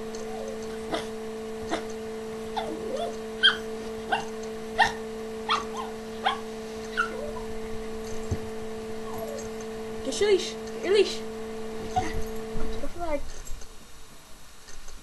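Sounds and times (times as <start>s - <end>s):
electrical hum: 0.0s - 15.0s
small dog yipping: 2.6s - 7.5s.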